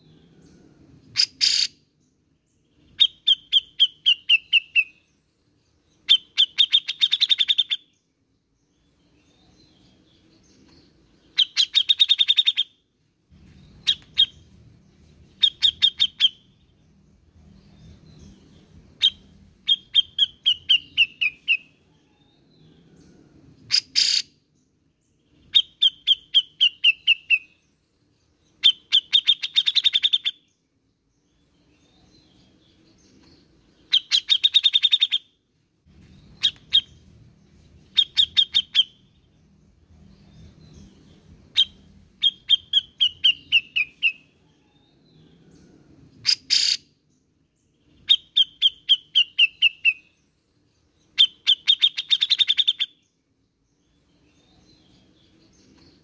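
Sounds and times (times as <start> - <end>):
single bird calls: 1.2 - 1.8, 23.7 - 24.3, 46.2 - 46.9
bird singing runs of notes: 35.9 - 56.0.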